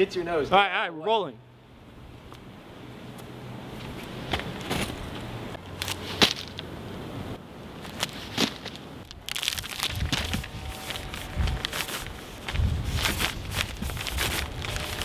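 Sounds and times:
footsteps on dry leaves: 7.8 - 15.0.

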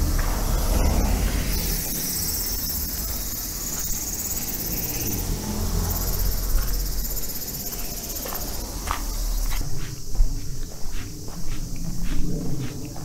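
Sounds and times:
cars passing rumble: 0.0 - 9.6
insects trilling: 0.0 - 13.0.

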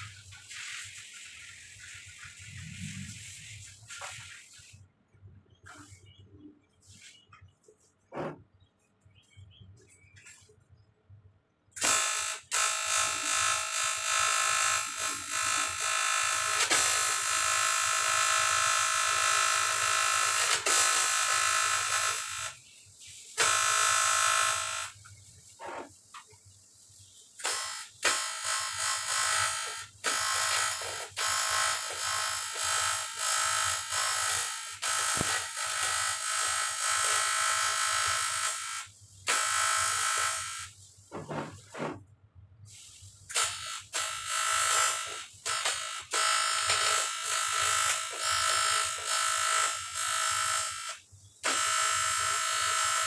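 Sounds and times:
welding arc buzzing and crackling: 11.8 - 22.6, 23.2 - 26.3, 27.4 - 40.8, 43.3 - 53.0.

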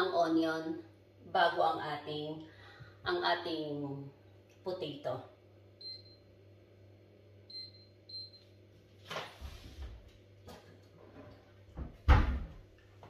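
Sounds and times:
cabinet door opening: 11.8 - 12.6.

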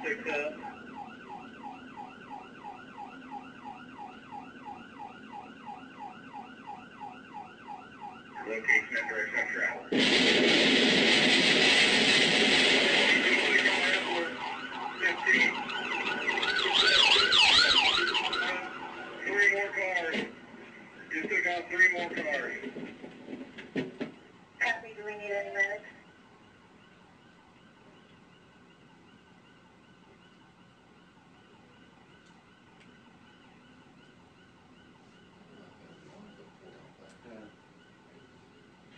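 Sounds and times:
police siren yelping: 0.0 - 22.9, 24.0 - 38.9
loud rushing noise: 9.9 - 14.2.

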